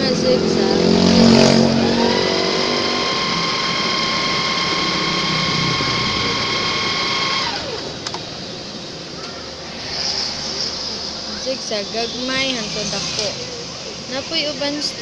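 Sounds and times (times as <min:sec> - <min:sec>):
sewing machine running: 0:01.7 - 0:07.9.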